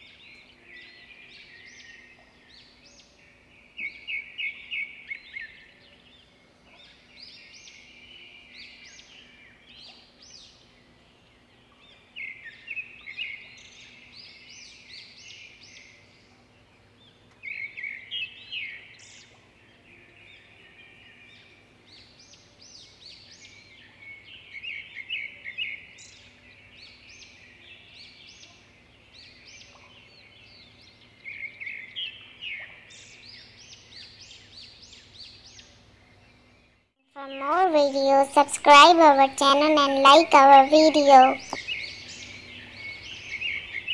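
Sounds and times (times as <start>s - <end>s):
small birds twittering: 40.0s - 43.9s.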